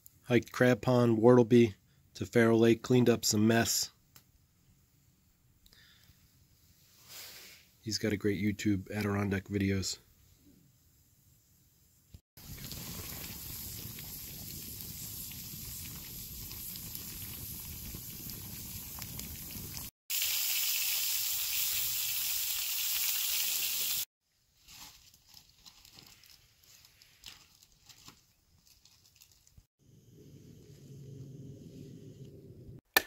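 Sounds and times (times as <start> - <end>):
meat sizzling in a pan: 12.4 - 24.1.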